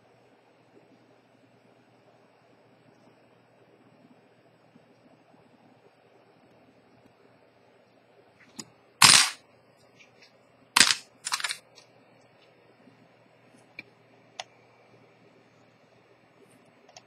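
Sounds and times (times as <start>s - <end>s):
tweezers clattering on workbench: 9.0s - 9.4s, 10.8s - 11.6s.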